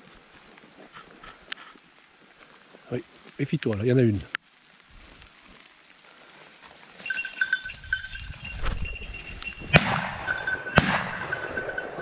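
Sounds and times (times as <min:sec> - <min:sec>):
dog's bell jingling: 0:06.9 - 0:12.0
shotgun shots: 0:09.7 - 0:12.0.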